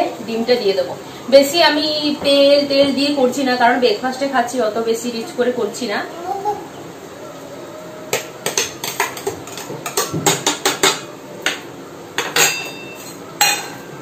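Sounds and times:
utensil knocking against pan: 0:08.1 - 0:11.6.

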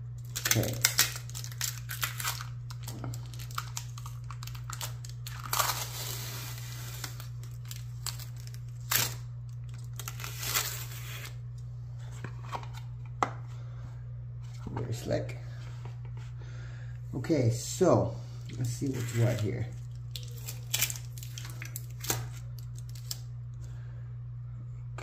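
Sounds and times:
steady low hum: 0:00.0 - 0:25.0
plastic crinkling: 0:00.2 - 0:11.4, 0:18.6 - 0:23.3.

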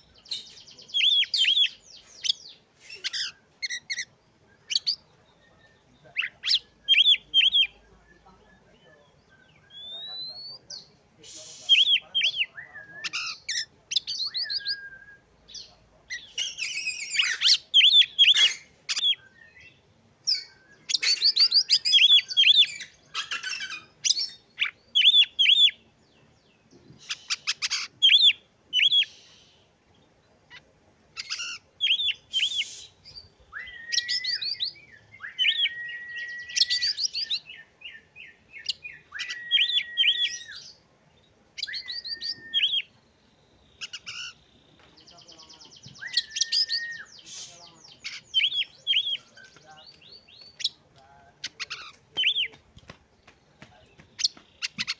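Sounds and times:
bird chirping phrases: 0:00.0 - 0:54.9
bird whistled notes: 0:32.0 - 0:37.4, 0:38.9 - 0:40.6, 0:41.6 - 0:42.9, 0:46.0 - 0:47.6.

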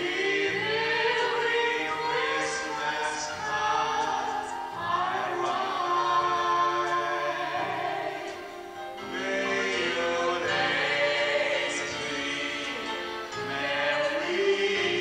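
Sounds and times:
instrumental accompaniment: 0:00.0 - 0:15.0
woman singing: 0:00.1 - 0:08.6.

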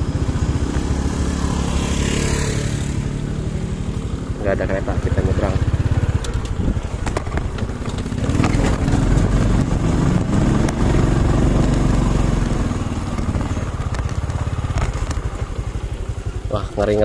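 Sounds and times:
motorcycle engine under load: 0:00.0 - 0:17.0
knocks and rattles of bike: 0:03.7 - 0:17.0.

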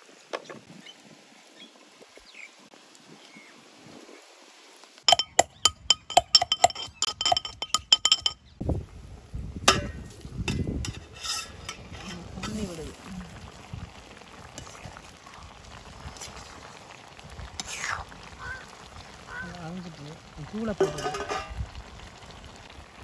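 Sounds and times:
sharp metallic clinks: 0:05.1 - 0:08.5.

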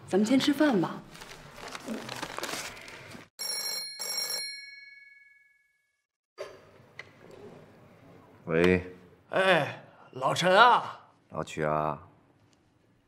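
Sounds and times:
telephone bell ringing: 0:03.4 - 0:06.0.

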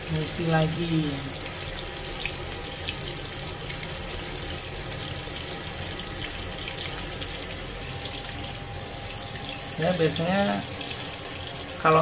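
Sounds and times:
water pouring into washing machine: 0:00.0 - 0:12.0.

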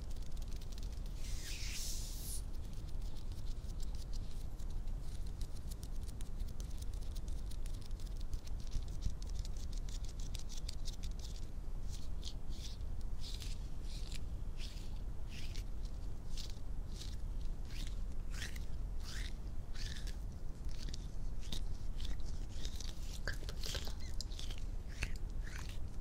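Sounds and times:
swishing rubs: 0:01.0 - 0:03.3.

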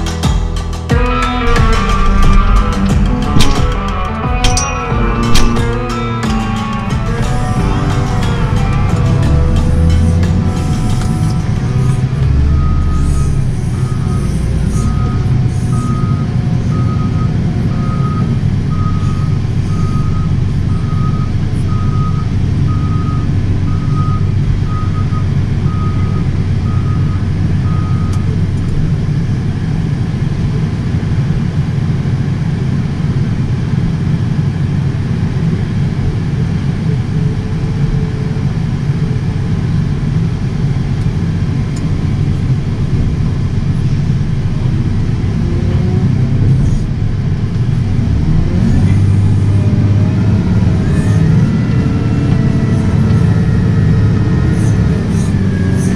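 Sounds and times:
diesel engine running under load: 0:00.0 - 0:55.9
reversing alarm beeping: 0:07.2 - 0:28.4.

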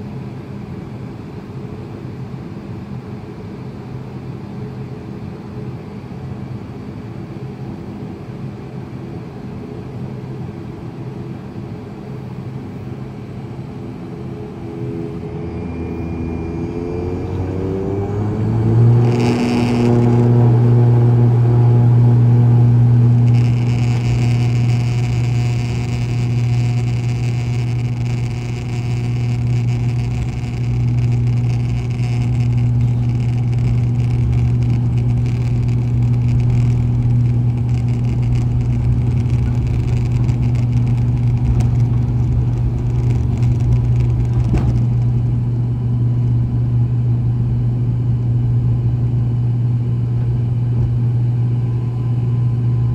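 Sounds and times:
turboprop propeller drone: 0:00.0 - 0:52.9.

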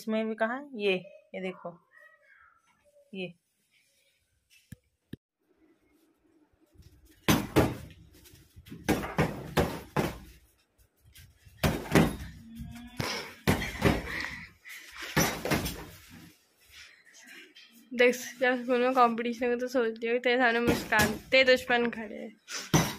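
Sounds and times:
punches thudding into punching bag: 0:07.3 - 0:07.9, 0:08.8 - 0:10.4, 0:11.6 - 0:12.4.

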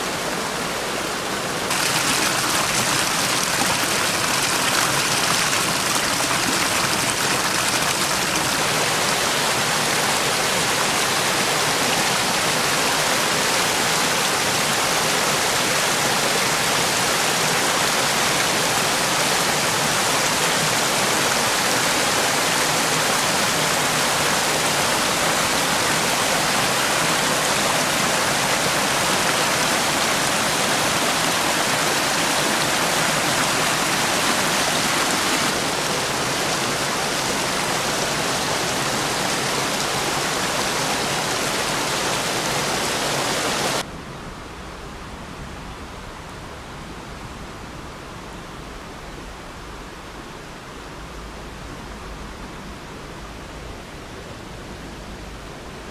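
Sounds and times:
stream rushing over rocks: 0:00.0 - 0:43.9.

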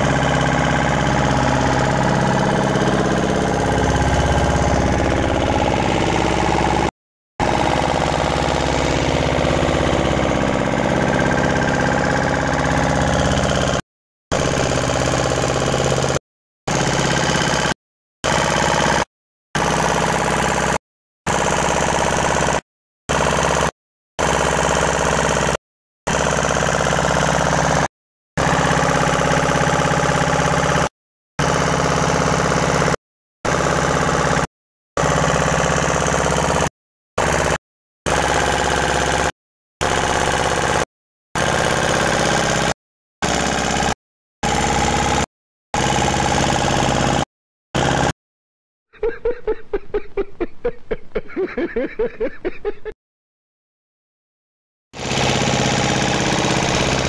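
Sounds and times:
boat engine droning: 0:00.0 - 0:16.1, 0:55.0 - 0:57.0.

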